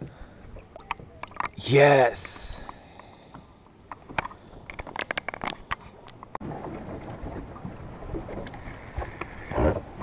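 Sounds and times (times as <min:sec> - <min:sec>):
wind and water hiss: 0:00.0 - 0:10.0
fishing gear clicking and scraping: 0:01.2 - 0:06.4.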